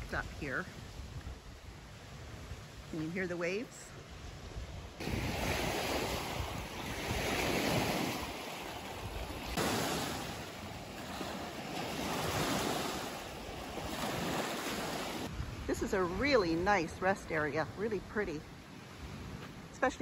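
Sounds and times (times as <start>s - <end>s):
wind buffeting microphone: 0.0s - 20.0s
waves washing onto pebbles: 5.0s - 15.6s.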